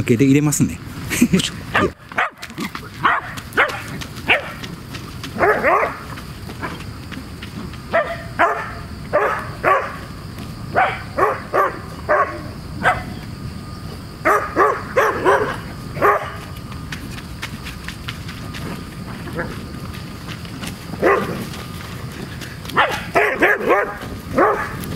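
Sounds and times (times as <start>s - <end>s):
dog barking: 1.7s - 4.6s, 5.4s - 6.1s, 7.9s - 10.0s, 10.7s - 13.2s, 14.2s - 16.4s, 21.0s - 21.4s, 22.7s - 24.8s.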